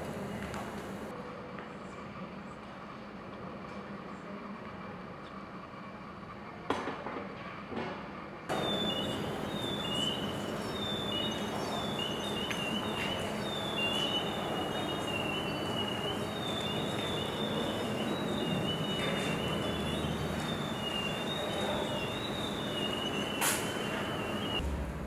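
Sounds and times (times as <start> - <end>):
high-pitched feedback whistles: 8.5 - 24.6.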